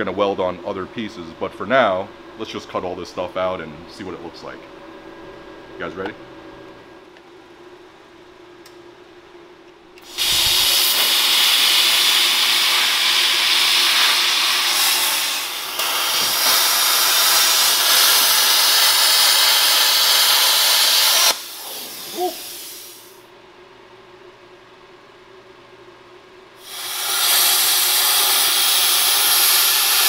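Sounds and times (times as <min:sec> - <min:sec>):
plasma cutter hissing: 0:10.0 - 0:23.2, 0:26.6 - 0:30.0.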